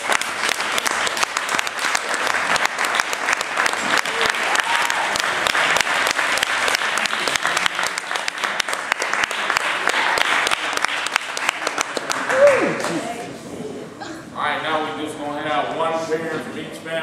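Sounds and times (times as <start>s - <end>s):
crowd applauding: 0.0s - 13.3s.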